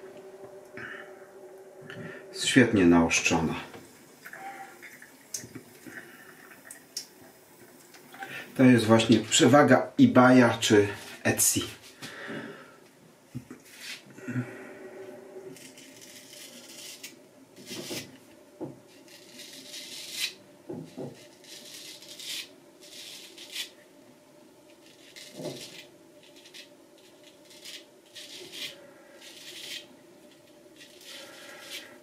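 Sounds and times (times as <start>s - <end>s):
razor scraping stubble: 15.6s - 18.1s, 18.9s - 20.4s, 21.0s - 23.8s, 24.8s - 32.0s.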